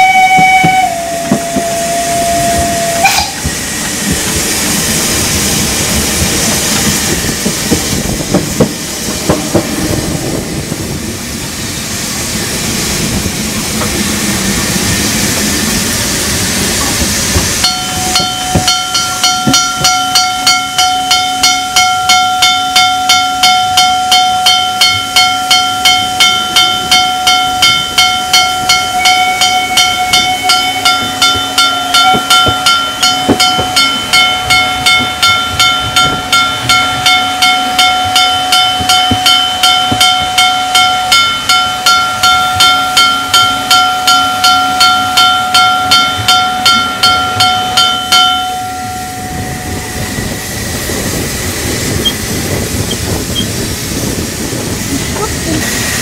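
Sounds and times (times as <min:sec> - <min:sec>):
steam whistle: 0:00.0 - 0:03.7, 0:28.4 - 0:33.7
steam locomotive chuffing: 0:00.0 - 0:56.0
steady high tone: 0:17.5 - 0:53.6
steam hissing: 0:48.9 - 0:56.0.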